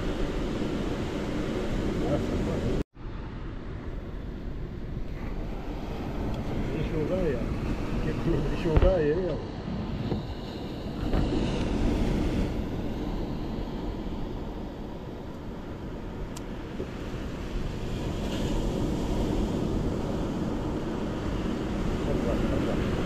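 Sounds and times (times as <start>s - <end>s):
wind buffeting microphone: 0.0s - 23.0s
surf breaking on shore: 4.8s - 23.0s.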